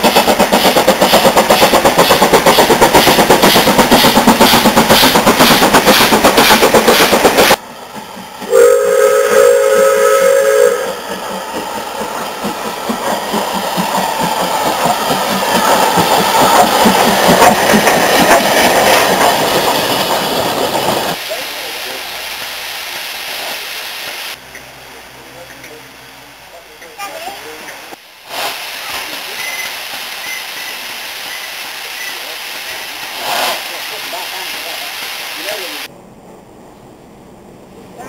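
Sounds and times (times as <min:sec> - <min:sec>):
steam locomotive exhaust beats: 0:00.0 - 0:27.0
steam whistle: 0:08.5 - 0:11.0.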